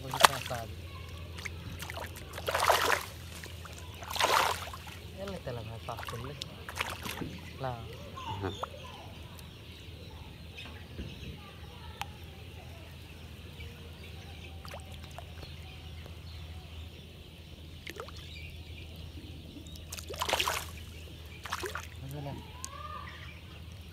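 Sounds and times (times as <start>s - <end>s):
fish splashing in water: 0.0s - 8.8s, 14.6s - 15.5s, 17.8s - 18.4s, 19.7s - 23.0s
low background rumble: 0.0s - 23.9s.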